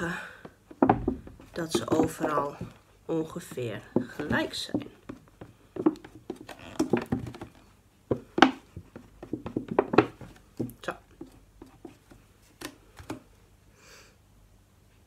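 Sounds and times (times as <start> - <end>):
plastic bottle crackling: 5.8 - 8.6.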